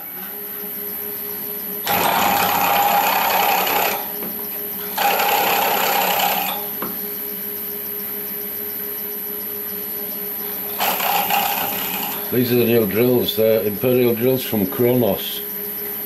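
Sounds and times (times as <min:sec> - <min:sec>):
milling spindle humming: 0:00.0 - 0:16.0
drill cutting into metal: 0:01.8 - 0:04.2, 0:04.9 - 0:06.7, 0:10.7 - 0:12.3.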